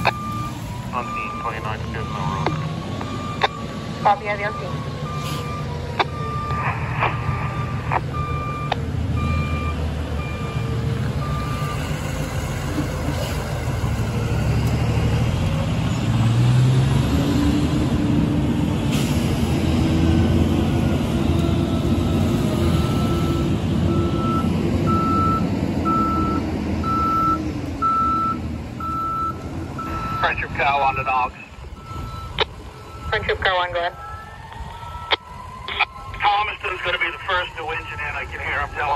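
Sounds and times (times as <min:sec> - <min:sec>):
reversing alarm beeping: 0:00.0 - 0:12.3, 0:21.6 - 0:38.9
heavy vehicle engine running: 0:00.0 - 0:38.9.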